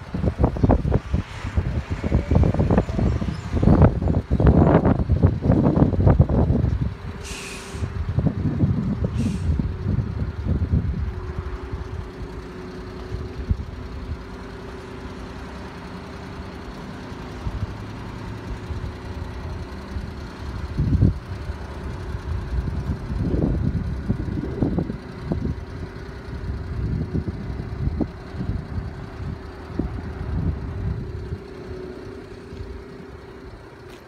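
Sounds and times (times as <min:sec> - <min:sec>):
wind rumbling on microphone: 0:00.0 - 0:14.3, 0:18.6 - 0:32.8
vehicle engine running: 0:00.0 - 0:34.0
short high hisses: 0:07.2 - 0:08.0, 0:09.1 - 0:09.6.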